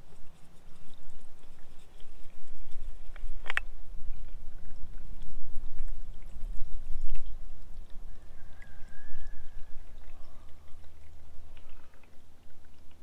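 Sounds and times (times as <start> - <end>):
fuel pouring and trickling: 0.0 - 13.0.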